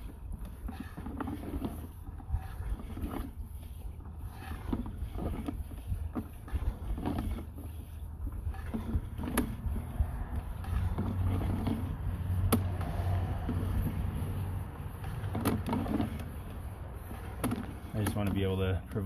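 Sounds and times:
push cable rumble: 0.0 - 19.0.

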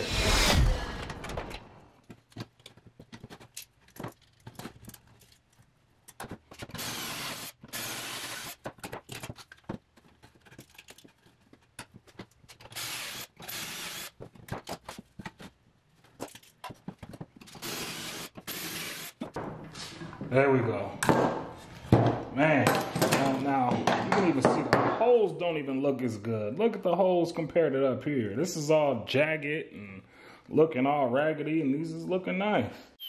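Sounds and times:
cordless drill boring into wood: 6.8 - 8.6, 12.8 - 14.1, 17.6 - 19.1.

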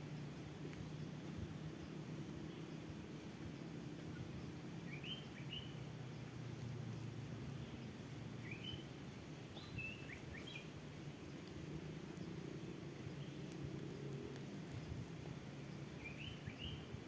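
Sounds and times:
small bird chirping: 1.8 - 6.3, 8.4 - 8.9, 9.5 - 10.7, 15.6 - 17.0.

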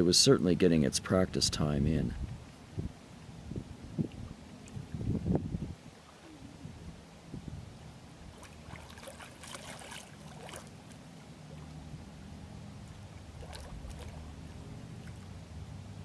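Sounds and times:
low steady rumble: 0.0 - 16.0
duck diving splashes: 8.3 - 10.9, 13.3 - 15.3.

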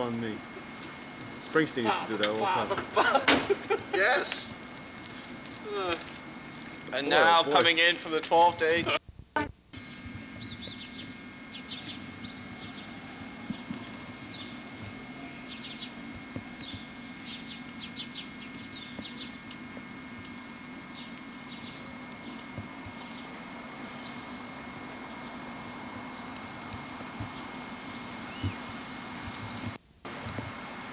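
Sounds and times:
faint high whine: 0.0 - 30.9
steady low hum: 0.0 - 30.9
small birds chirping: 0.3 - 1.8, 9.8 - 30.9.

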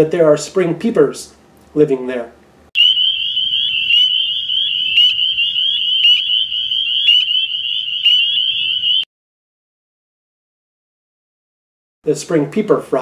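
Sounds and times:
close frog peep: 2.8 - 9.0
frog chorus peeping: 2.8 - 9.0.

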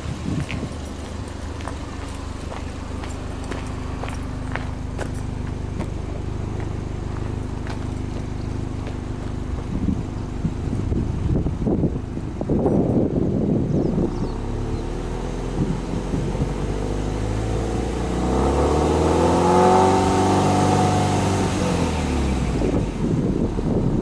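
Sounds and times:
car engine revving: 0.2 - 24.0.

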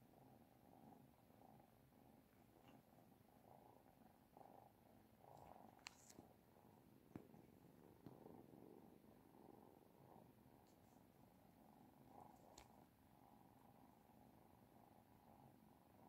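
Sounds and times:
cats purring: 0.0 - 16.0
faint clicks: 5.3 - 6.3, 12.2 - 12.9.

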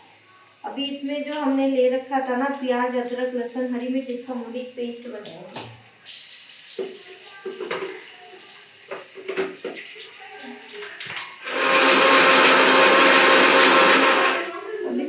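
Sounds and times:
electric mixer grinder running: 11.4 - 14.6.

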